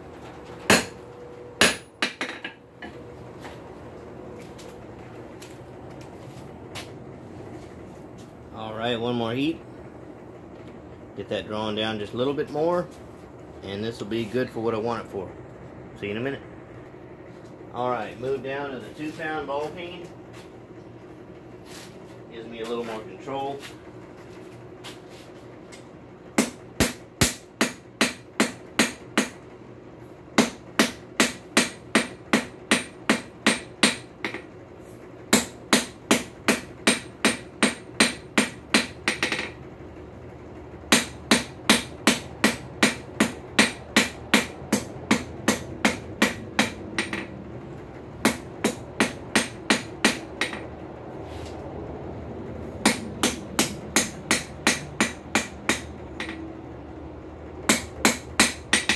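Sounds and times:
hammer striking steel on anvil: 0:00.7 - 0:01.0, 0:01.6 - 0:03.0, 0:26.4 - 0:29.4, 0:30.4 - 0:34.4, 0:35.3 - 0:39.6, 0:40.9 - 0:47.3, 0:48.2 - 0:50.7, 0:52.8 - 0:56.4, 0:57.7 - 0:58.9.

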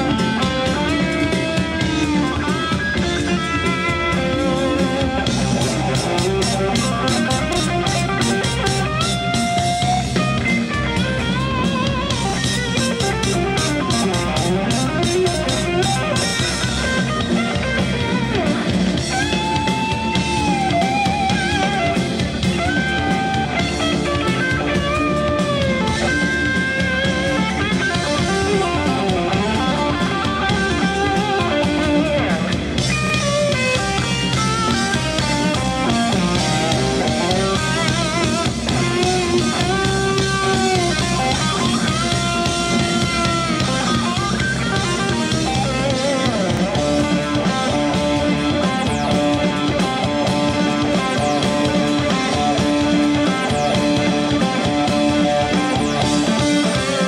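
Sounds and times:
bass guitar: 0:00.0 - 0:57.0
drums: 0:00.0 - 0:57.0
keyboards: 0:00.0 - 0:57.0
lead guitar held bending notes: 0:00.0 - 0:57.0.

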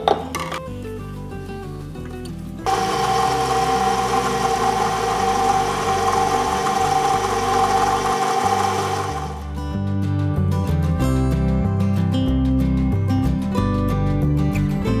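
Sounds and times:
dough fed through pasta roller: 0:02.7 - 0:09.4
stand mixer motor whining: 0:02.7 - 0:09.5.

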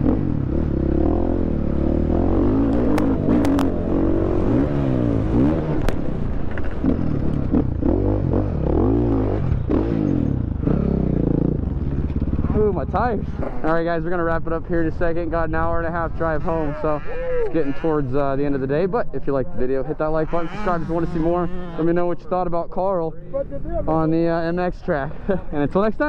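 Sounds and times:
motorcycle engine revving: 0:00.0 - 0:18.2, 0:20.0 - 0:22.1
sharp clacks from motorcycle: 0:02.7 - 0:03.8, 0:05.7 - 0:07.7, 0:11.8 - 0:12.6.

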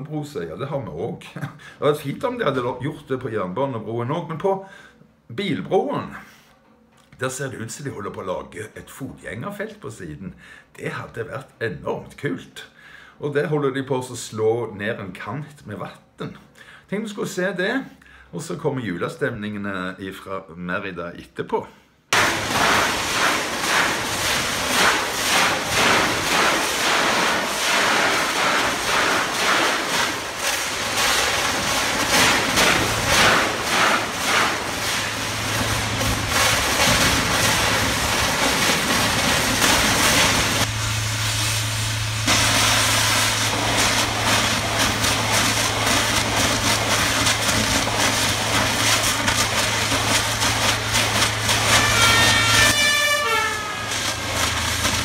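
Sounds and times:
steady low hum: 0:22.2 - 0:51.8
high-pressure water jet hissing: 0:22.2 - 0:55.0.

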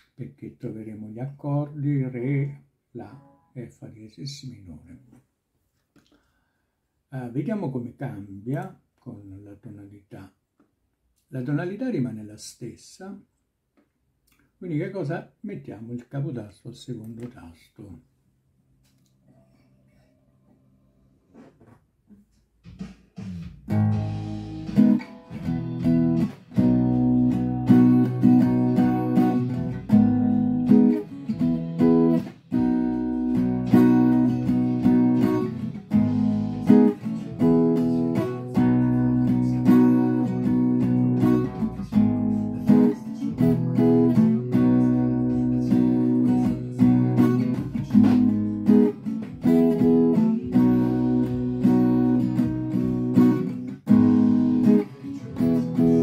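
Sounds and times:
acoustic guitar strumming: 0:23.2 - 0:56.0.

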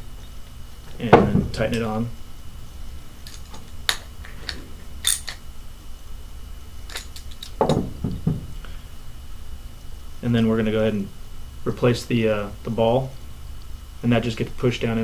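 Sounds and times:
wrench set down on table: 0:06.9 - 0:08.4.

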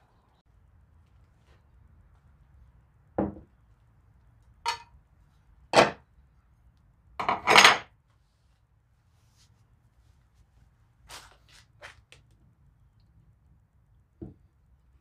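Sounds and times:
parts knocking and clattering: 0:03.2 - 0:03.6, 0:04.7 - 0:04.9, 0:05.8 - 0:06.0, 0:07.2 - 0:07.9.

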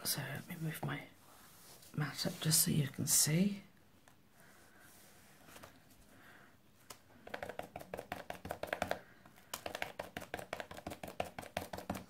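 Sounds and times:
glue applicator tapping: 0:07.2 - 0:12.0.

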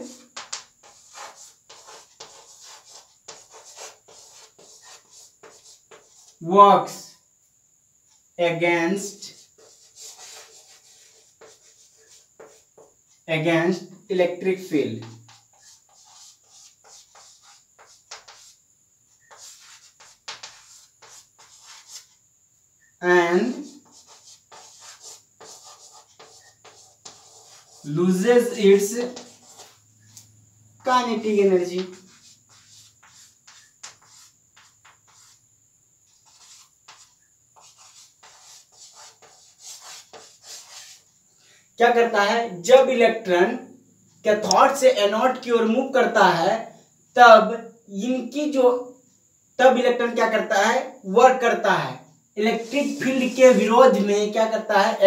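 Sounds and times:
chalk writing on blackboard: 0:00.0 - 0:06.4, 0:09.0 - 0:13.2, 0:15.0 - 0:22.2, 0:23.4 - 0:41.2, 0:52.4 - 0:54.1.

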